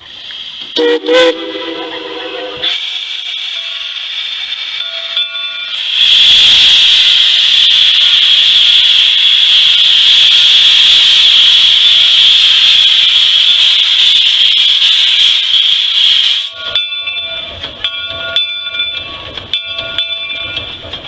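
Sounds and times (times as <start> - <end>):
steam locomotive venting steam: 0.0 - 21.0
steam whistle blast: 0.8 - 2.9, 6.0 - 11.6.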